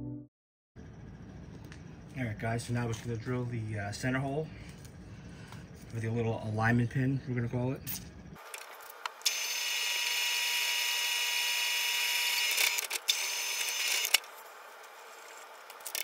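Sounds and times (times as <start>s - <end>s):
drill clicks: 8.5s - 14.3s
electric drill whining: 8.5s - 16.0s.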